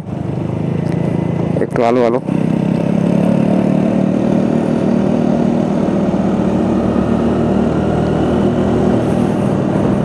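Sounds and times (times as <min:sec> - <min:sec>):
scooter engine running: 0:00.0 - 0:10.0
wind and road noise: 0:00.0 - 0:10.0.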